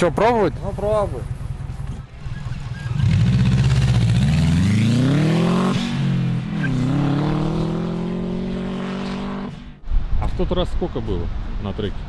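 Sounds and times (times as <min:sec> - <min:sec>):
race car engine revving: 0:02.3 - 0:09.7.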